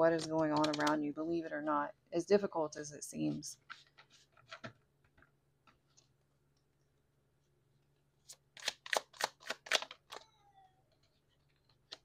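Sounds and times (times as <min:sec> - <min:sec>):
cards being shuffled: 0:08.2 - 0:10.3.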